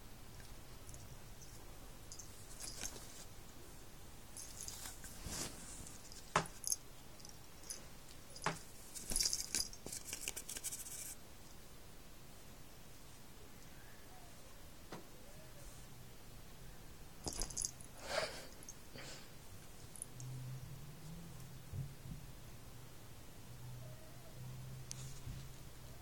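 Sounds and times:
duvet rustling: 2.1 - 3.4, 4.3 - 6.7.

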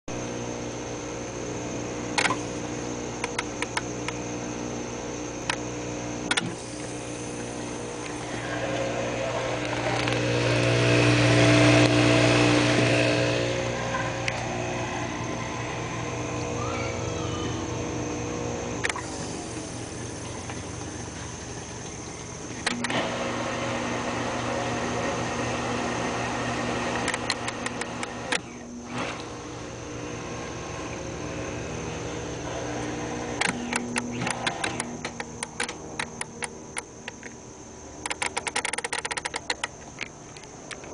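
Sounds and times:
dishwasher motor hum: 0.1 - 38.1
rapid clicking: 38.0 - 40.9.

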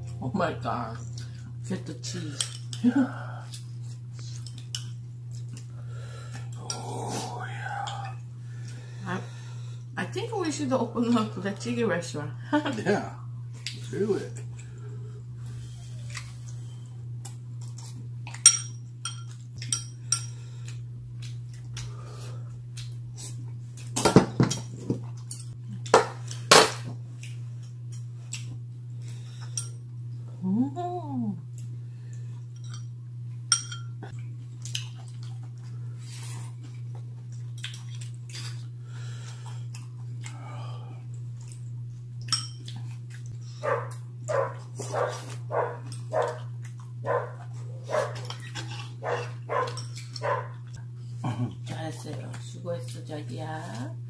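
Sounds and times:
utensils clinking on bowls: 18.3 - 20.4, 32.5 - 32.9, 33.5 - 34.0, 42.3 - 42.8, 47.9 - 50.5.

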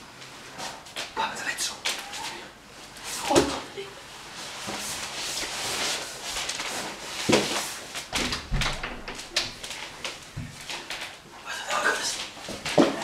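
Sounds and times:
rustling and shuffling: 0.0 - 13.0
thuds and knocks on floor: 8.2 - 9.6.

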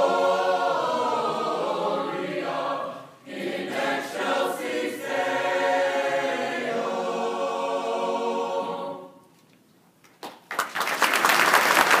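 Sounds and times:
choir singing sustained chord: 0.0 - 9.2
audience applause: 10.2 - 12.0.

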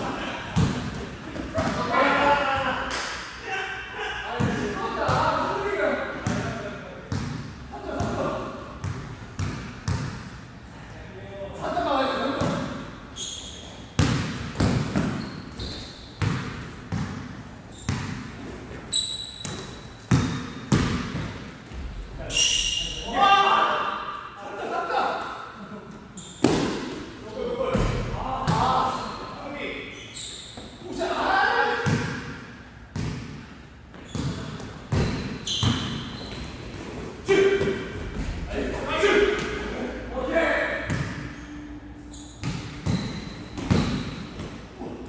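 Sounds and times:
basketball bouncing on gym floor: 8.8 - 10.4, 14.0 - 18.3, 19.4 - 22.0, 32.9 - 36.5, 42.4 - 44.6
sneakers squeaking: 11.9 - 23.2, 25.9 - 30.9, 32.9 - 38.5, 40.8 - 45.0.

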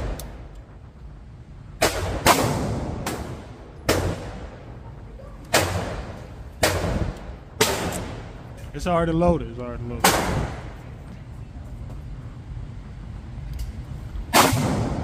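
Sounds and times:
gunshots echoing indoors: 1.7 - 4.8, 5.5 - 8.4, 14.2 - 15.0.

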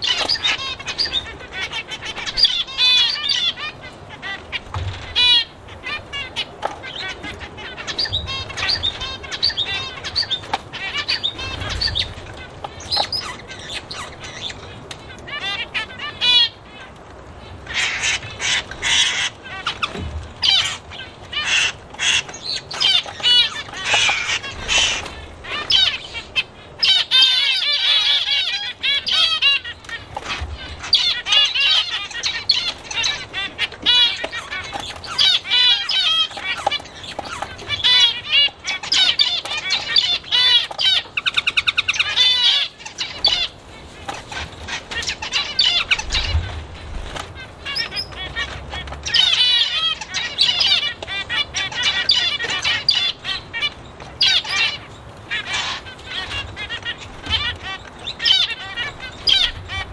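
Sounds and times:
small birds chirping: 0.0 - 59.9
buzzy bird trill: 17.7 - 46.6.

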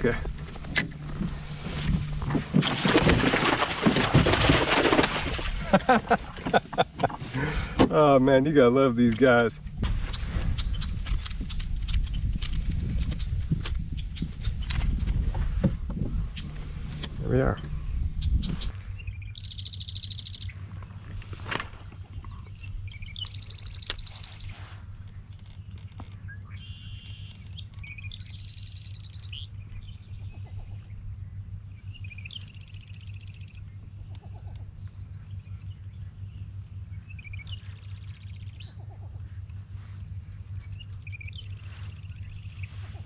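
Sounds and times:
low rumble: 0.0 - 43.0
songbird trilling: 17.2 - 20.9, 22.1 - 24.7, 25.6 - 43.0.

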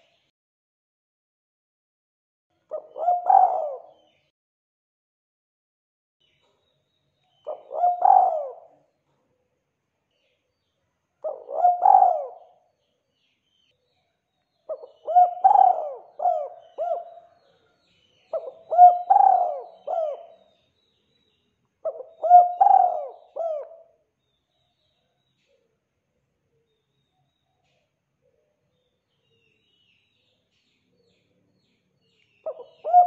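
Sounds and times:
dove cooing: 2.7 - 4.1, 7.5 - 8.8, 11.2 - 12.6, 14.7 - 17.4, 18.3 - 20.5, 21.8 - 24.0, 32.5 - 33.0.

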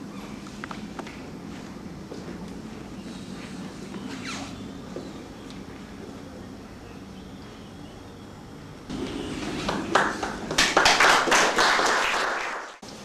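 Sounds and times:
audience applause: 9.0 - 12.8.

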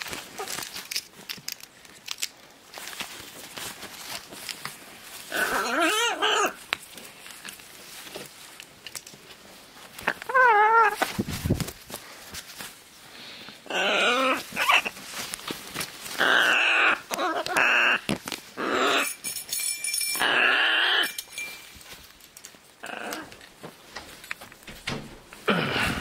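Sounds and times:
clicks and knocks: 24.0 - 25.4.

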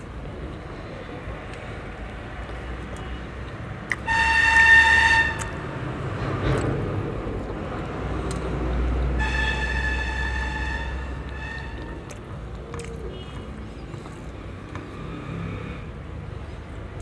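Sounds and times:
horn blasts: 4.0 - 5.6, 9.2 - 12.0.

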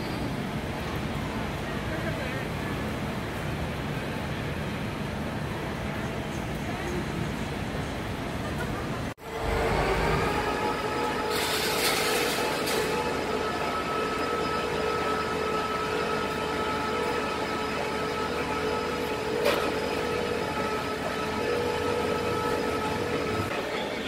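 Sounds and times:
crane engine drone: 0.0 - 24.0
steady whine: 9.2 - 23.5.

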